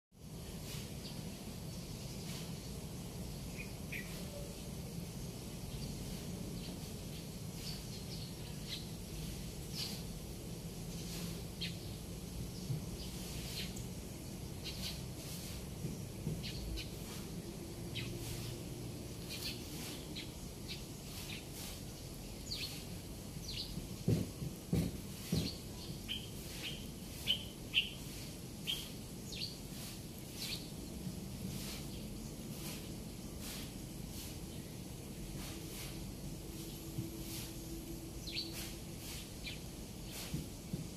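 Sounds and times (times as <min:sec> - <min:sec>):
small bird chirping: 0:00.7 - 0:18.6, 0:19.2 - 0:24.1, 0:25.2 - 0:30.9, 0:36.6 - 0:40.3.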